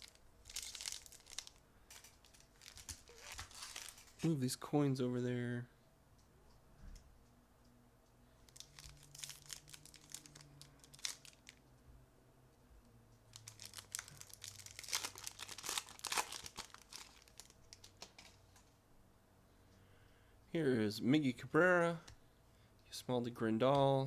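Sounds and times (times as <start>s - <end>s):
plastic wrapper crinkling and tearing: 0.0s - 4.3s, 8.4s - 11.6s, 13.3s - 18.4s.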